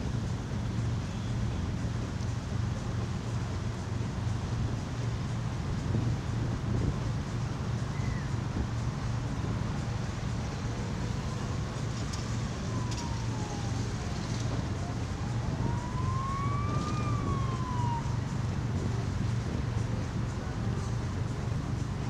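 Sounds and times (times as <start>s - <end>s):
steady low rumble: 0.0s - 22.0s
emergency vehicle siren wailing: 10.0s - 19.3s.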